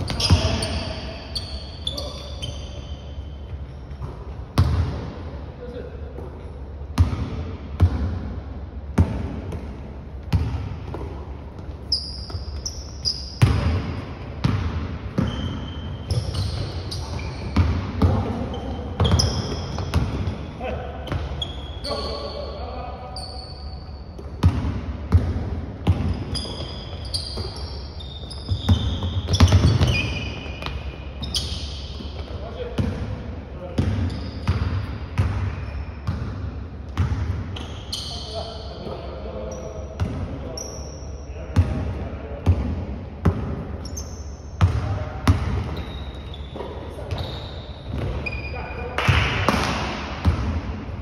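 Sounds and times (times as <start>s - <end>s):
sneakers squeaking on floor: 0.0s - 5.1s, 9.0s - 50.9s
basketball bouncing on wood floor: 28.2s - 32.9s.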